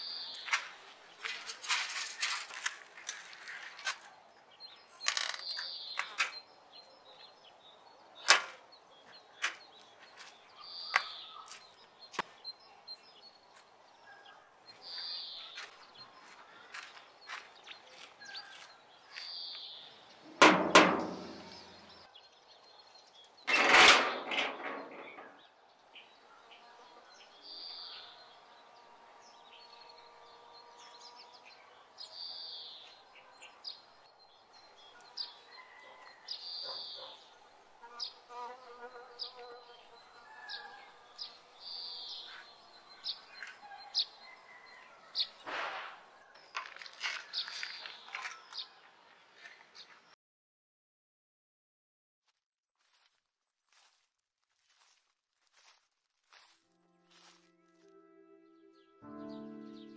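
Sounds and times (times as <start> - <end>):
birds chirping: 0.0 - 45.4, 46.0 - 50.2, 58.4 - 59.9
loud clattering knocks: 20.3 - 21.8.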